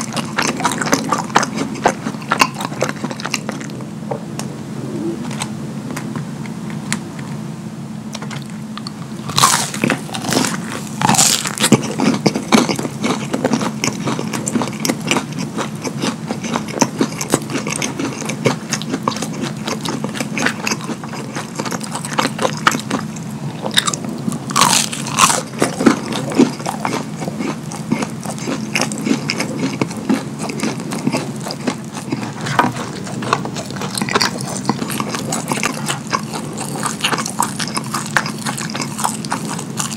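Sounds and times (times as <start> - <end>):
chewing and smacking mouth sounds: 0.0 - 3.8, 8.1 - 39.9
crunchy bites: 8.2 - 39.9.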